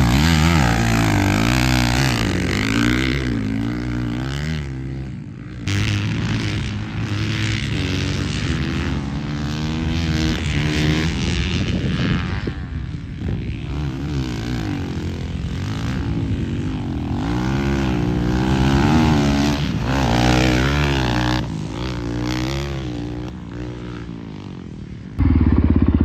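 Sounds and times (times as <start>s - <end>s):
dirt bike engine revving: 0.0s - 26.0s.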